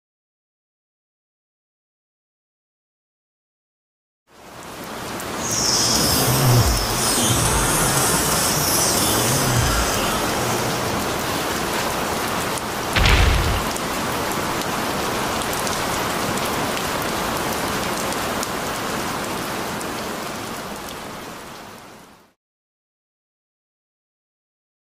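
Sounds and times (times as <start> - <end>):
heavy rain: 4.3 - 22.4
loud low boom: 13.0 - 14.1.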